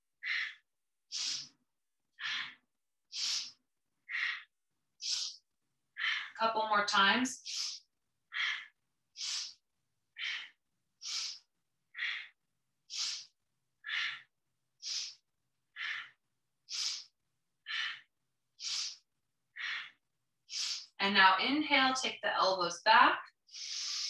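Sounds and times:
woman breathing quickly: 0.2 - 1.6, 2.2 - 6.4, 7.4 - 19.0, 19.6 - 21.0, 23.5 - 24.0.

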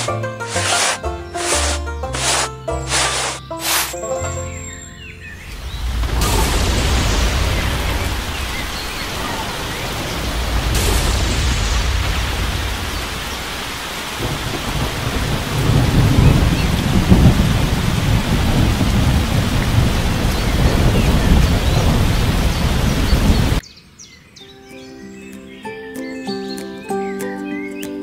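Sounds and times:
heavy rain: 0.0 - 3.9, 5.5 - 23.6
light music: 0.0 - 5.5, 24.6 - 28.0
rolling thunder: 5.4 - 23.6.

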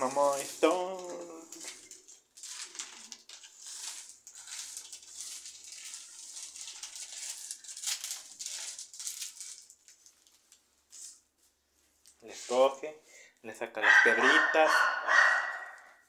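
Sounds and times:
dry beans rattling: 0.0 - 10.1.

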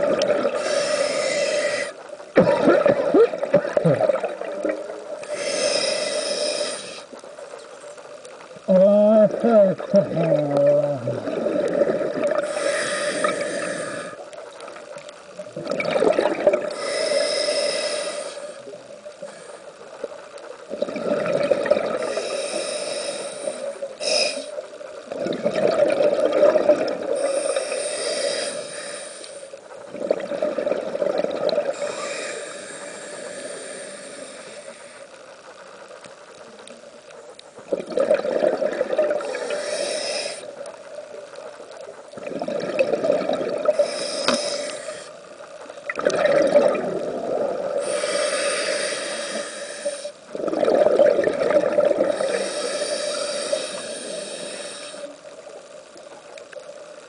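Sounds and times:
regulator inhale hiss: 0.4 - 2.2, 5.2 - 7.3, 12.3 - 14.4, 16.6 - 20.2, 21.9 - 25.0, 27.1 - 29.8, 31.7 - 35.4, 39.2 - 40.8, 43.6 - 45.4, 47.7 - 50.3, 52.1 - 55.6.

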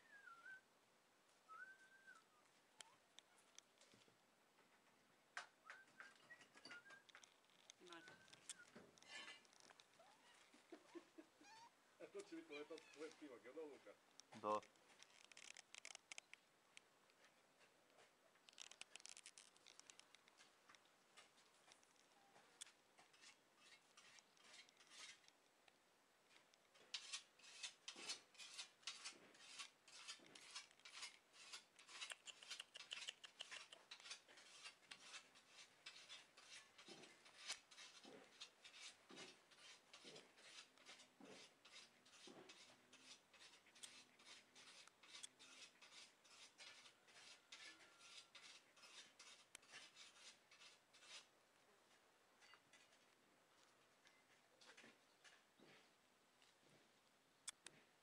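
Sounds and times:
fast faint clicks and rustles: 2.8 - 11.0, 14.1 - 41.1.

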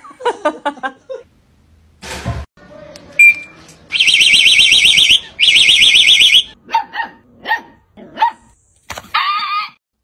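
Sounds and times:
bird mimicking car alarm siren: 4.0 - 6.6
dog barking: 6.7 - 8.5.

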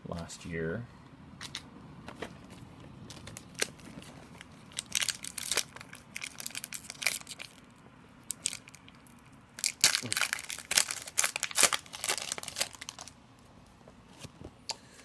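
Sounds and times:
foil wrapper crinkling: 3.1 - 7.7, 8.3 - 13.2.

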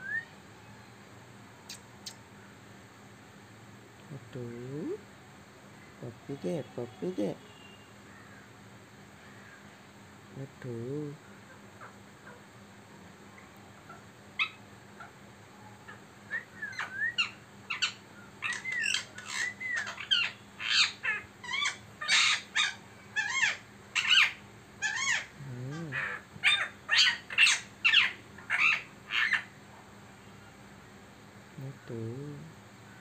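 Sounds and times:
parrot squawking and chirping: 14.4 - 15.1, 16.3 - 29.5.

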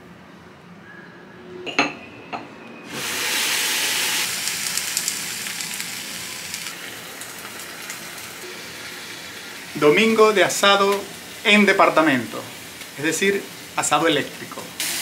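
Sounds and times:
meat sizzling on grill: 3.0 - 15.0
small crackles: 4.2 - 8.4.

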